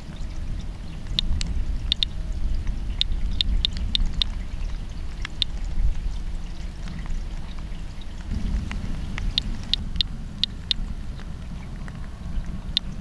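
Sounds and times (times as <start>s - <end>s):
steady low rumble: 0.0s - 13.0s
geiger counter chirping: 1.1s - 2.1s, 2.9s - 4.4s, 8.8s - 10.9s.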